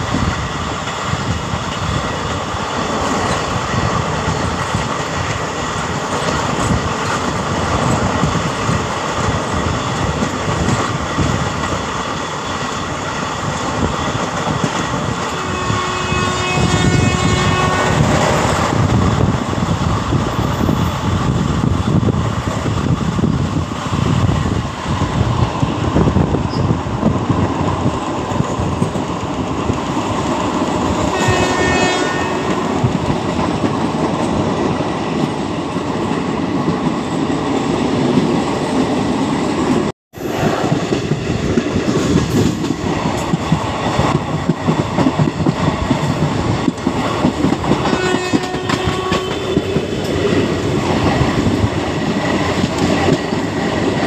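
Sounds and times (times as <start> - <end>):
train wheels on rail: 0.0 - 54.0
wind noise: 0.0 - 54.0
train horn: 15.2 - 18.4, 31.1 - 32.8, 47.8 - 49.8.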